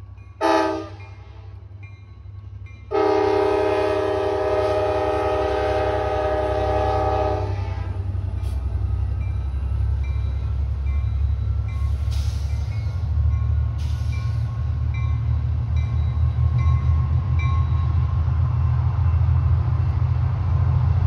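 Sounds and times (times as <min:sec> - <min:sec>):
diesel locomotive rumble: 0:00.0 - 0:21.0
short air hisses: 0:12.0 - 0:12.9.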